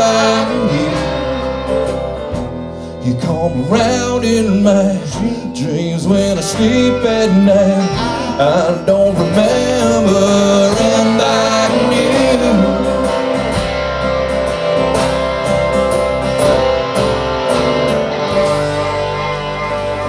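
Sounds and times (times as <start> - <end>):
drums and cymbals: 0.0 - 4.2
acoustic guitar strumming: 0.0 - 20.0.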